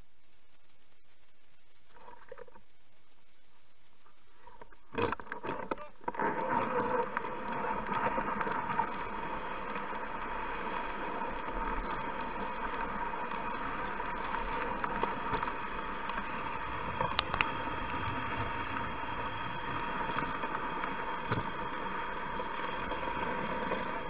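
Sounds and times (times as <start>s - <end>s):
sled gliding over snow: 6.1s - 24.0s.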